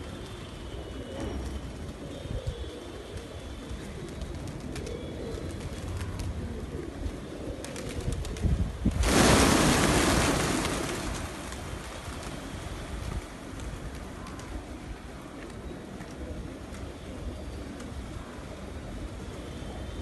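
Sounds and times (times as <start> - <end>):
pigeons cooing: 0.0 - 11.3, 13.8 - 20.0
flapping wings: 3.1 - 6.5, 7.5 - 14.8.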